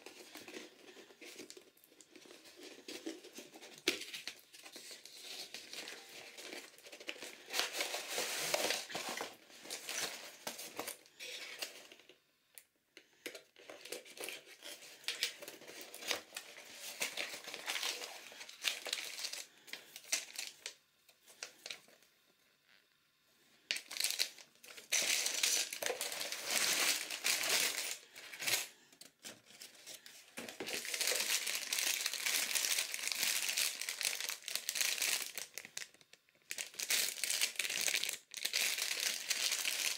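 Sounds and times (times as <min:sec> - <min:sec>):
plastic bags crinkling: 0:00.0 - 0:12.1, 0:13.6 - 0:22.0, 0:23.7 - 0:28.8, 0:29.9 - 0:39.9
cardboard packaging opened and slid: 0:04.7 - 0:11.7.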